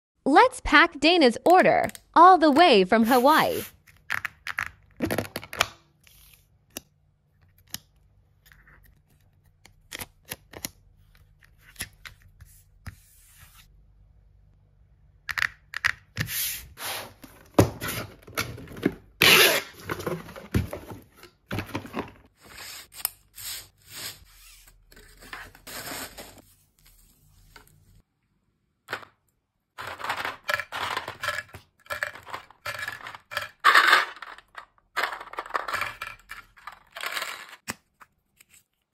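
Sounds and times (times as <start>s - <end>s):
plastic capsules clattering: 29.8s - 37.7s.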